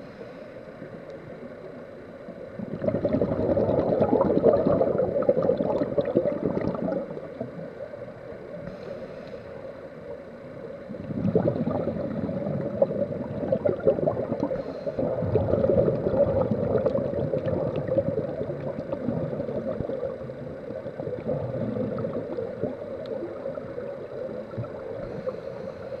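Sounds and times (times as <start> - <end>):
underwater bubbles gurgling: 0.0 - 26.0
faint clicks: 0.7 - 1.8, 8.2 - 10.2, 14.3 - 14.9, 22.2 - 26.0.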